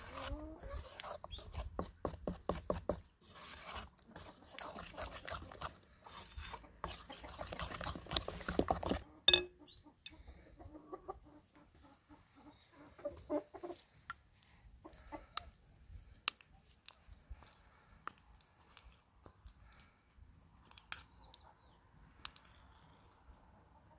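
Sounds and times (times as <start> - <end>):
stick stirring thick paste: 0.0 - 9.5, 14.9 - 19.8, 20.6 - 21.1, 22.2 - 23.2
hens clucking: 6.4 - 14.1, 14.8 - 15.6.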